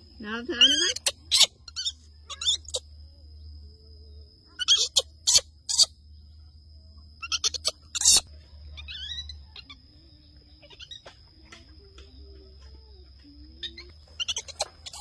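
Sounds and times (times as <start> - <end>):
baby monkey screeching: 0.5 - 2.9, 4.5 - 6.0, 7.2 - 9.8, 10.6 - 11.0, 13.6 - 15.0
monkey chirping calls: 0.5 - 2.9, 4.5 - 6.0, 7.2 - 9.8, 10.6 - 11.1, 13.6 - 15.0.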